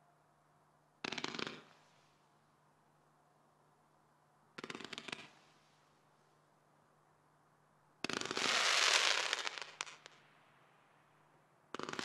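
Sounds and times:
fireworks popping and crackling: 1.0 - 1.8, 4.6 - 5.4, 8.0 - 10.2, 11.7 - 12.0.

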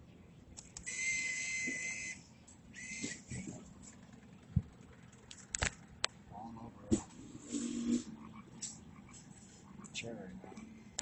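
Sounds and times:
bill acceptor whirring: 0.8 - 3.5, 7.1 - 8.8.

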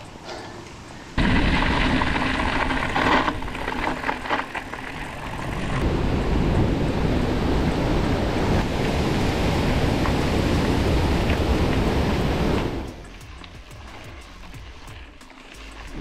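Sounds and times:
mountain bike rolling over rough ground: 0.0 - 16.0
wind buffeting microphone: 5.0 - 13.0.

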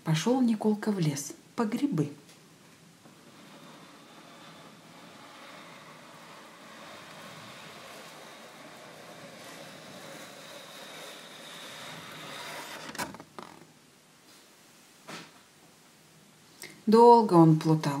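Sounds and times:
paper card scraping out of frame: 3.1 - 13.7.

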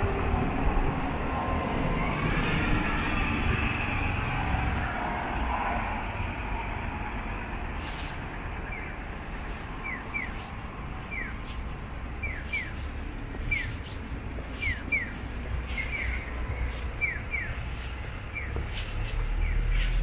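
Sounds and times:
low street rumble: 0.0 - 20.0
crossing signal bird-call chirps: 8.6 - 9.1, 9.7 - 20.0.

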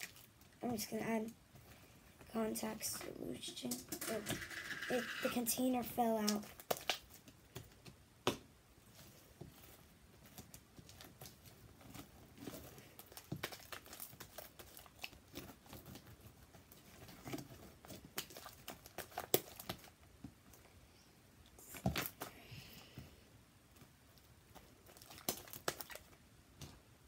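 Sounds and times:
slime squishing and crackling: 0.0 - 1.8, 3.6 - 8.0, 8.8 - 20.6, 23.8 - 26.8.

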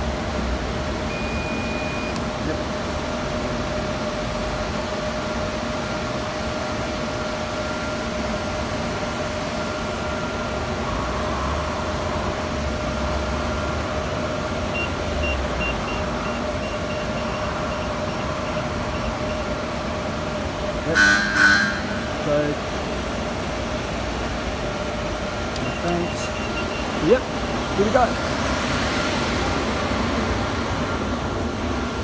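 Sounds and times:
steady machine hum: 0.0 - 32.0
short electronic beeps: 1.1 - 2.2, 14.7 - 19.5, 21.0 - 22.1, 25.6 - 27.7.

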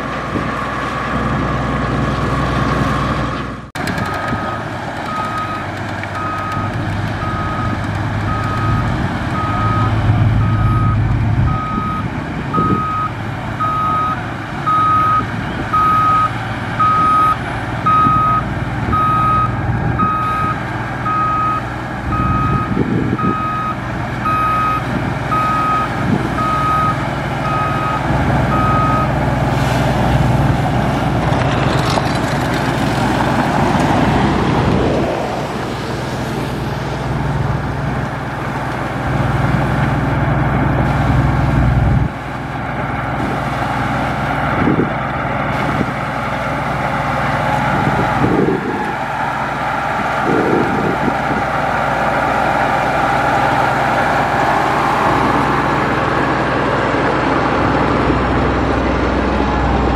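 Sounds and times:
diesel engine running: 0.0 - 59.9
reverse alarm beeping: 6.2 - 29.1.

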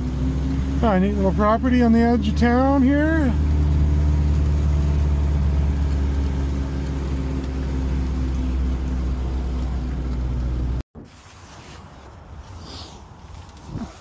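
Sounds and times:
vehicle engine droning: 0.0 - 10.8
outdoor background: 0.0 - 14.0.

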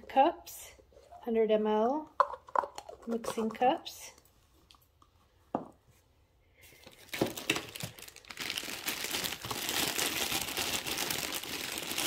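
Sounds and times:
plastic bag crinkling: 6.8 - 12.0.

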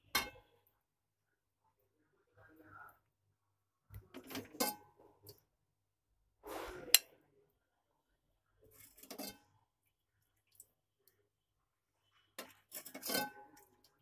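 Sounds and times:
spoon scraping a pot: 8.7 - 9.7, 12.0 - 14.0.

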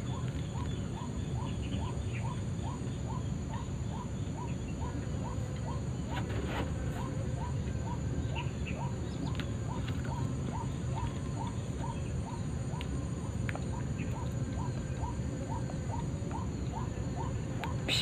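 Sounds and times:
bird call: 14.0 - 18.0.

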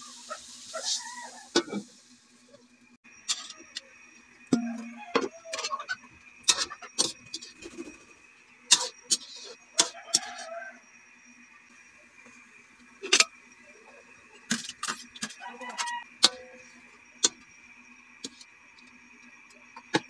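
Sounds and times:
metal spatula scraping wok: 3.2 - 3.8, 8.7 - 10.6.

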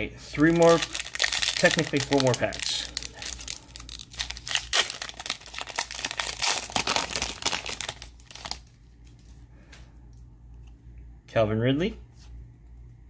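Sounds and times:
plastic wrapper crinkling: 0.4 - 9.3.

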